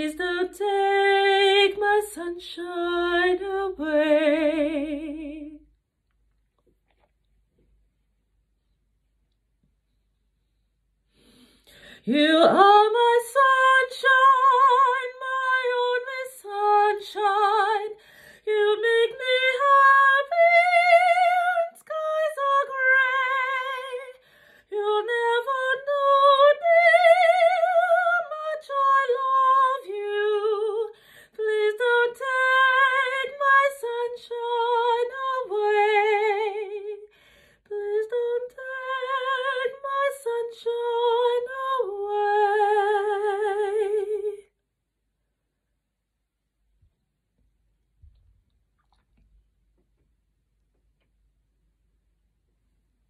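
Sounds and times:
woman singing soprano: 0.0s - 5.7s, 11.9s - 44.5s.

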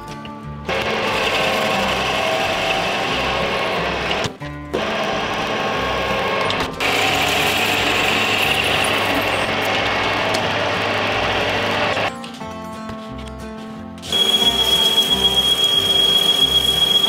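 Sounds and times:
metal lathe cutting hiss: 6.8s - 10.2s, 14.1s - 17.0s.

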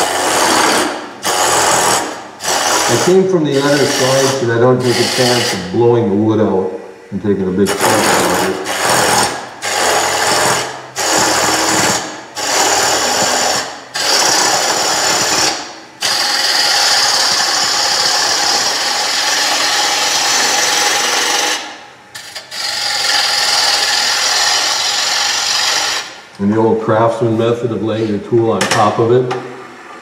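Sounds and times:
lathe tool cutting wood: 0.0s - 5.8s, 7.6s - 21.7s, 22.4s - 26.2s.

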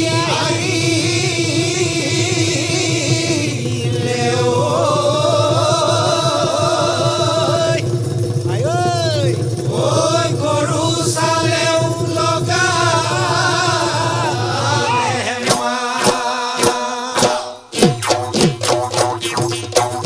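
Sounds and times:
man singing: 0.0s - 7.8s, 11.8s - 17.6s
drum strikes: 0.0s - 20.0s
steady held drone: 0.0s - 20.0s.

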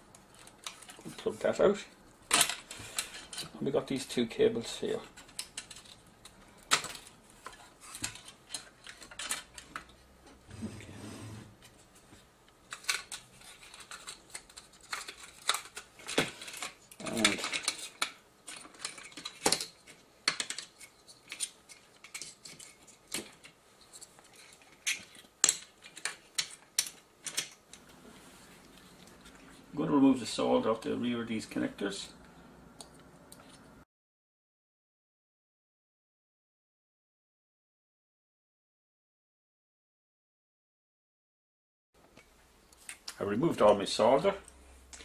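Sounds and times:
plastic and metal parts clattering: 0.3s - 1.7s, 2.3s - 9.9s, 11.6s - 27.9s.

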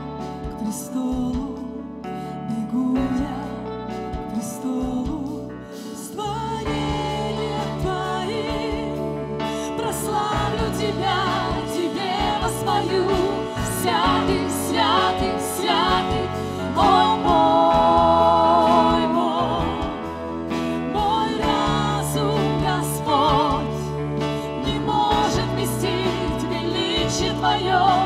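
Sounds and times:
group of singers: 0.0s - 28.0s
keyboards: 0.0s - 28.0s
woman singing with vibrato: 0.6s - 3.7s, 4.3s - 28.0s
guitars with steady beat: 6.6s - 28.0s.

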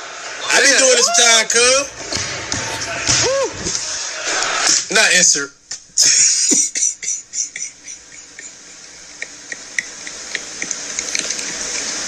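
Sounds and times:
breathy wheezing laughter: 6.0s - 8.9s
soft hissing with faint clicks: 7.5s - 12.0s.

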